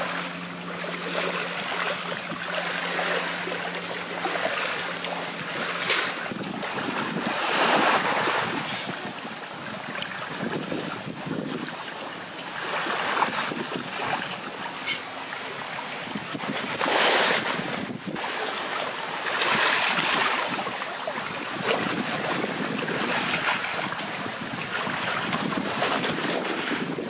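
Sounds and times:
waves washing onto rocks: 0:00.0 - 0:27.0
wind on microphone: 0:05.2 - 0:11.9, 0:12.8 - 0:14.4, 0:16.0 - 0:18.4, 0:19.4 - 0:27.0.

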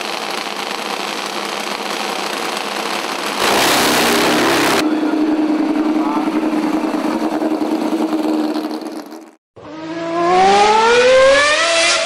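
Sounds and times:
car engine running: 0:00.0 - 0:09.4
engine accelerating hard: 0:00.0 - 0:12.0.

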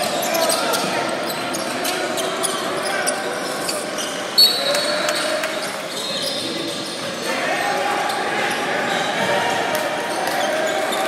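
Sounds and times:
referee's whistle blast: 0:04.4 - 0:04.9.

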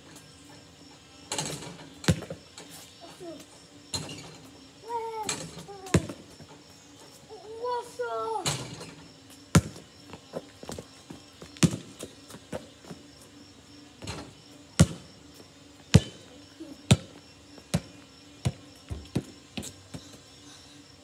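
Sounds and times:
faint insects chirring: 0:00.0 - 0:21.0
basketball bouncing on hard ground: 0:01.4 - 0:02.4, 0:05.5 - 0:06.5, 0:09.5 - 0:13.1, 0:14.0 - 0:20.1.

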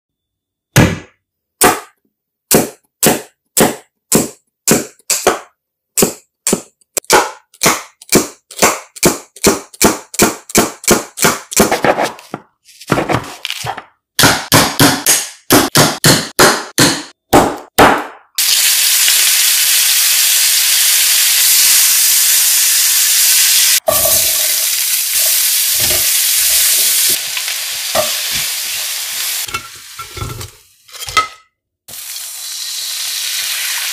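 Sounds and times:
vegetables sizzling in a frying pan: 0:18.4 - 0:30.2, 0:31.9 - 0:33.9.

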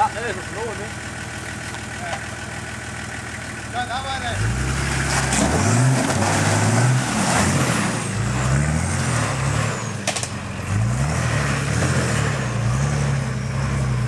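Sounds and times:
engine revving: 0:03.8 - 0:14.0.

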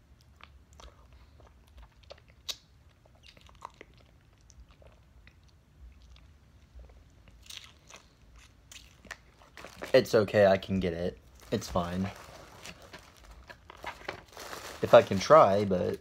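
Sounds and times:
mouth clicks and wet smacks: 0:00.1 - 0:09.4.

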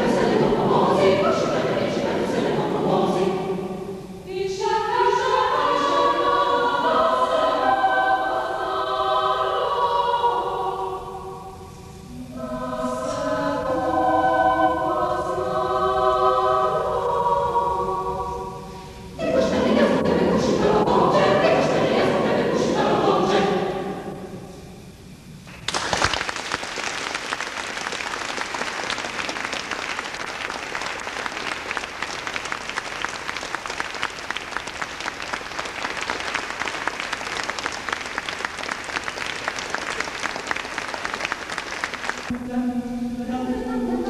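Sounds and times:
choir singing: 0:00.0 - 0:24.8, 0:42.4 - 0:44.0
audience applauding: 0:25.5 - 0:42.3.

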